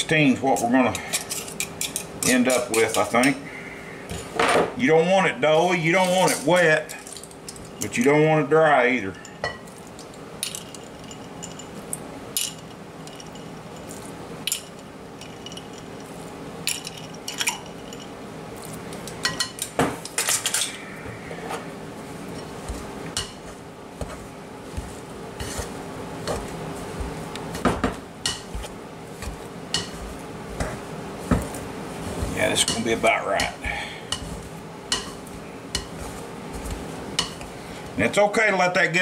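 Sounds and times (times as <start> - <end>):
faint steady hum: 0.0 - 39.0
metal utensils clinking on bowl: 0.6 - 3.4, 6.0 - 7.9, 16.7 - 18.1.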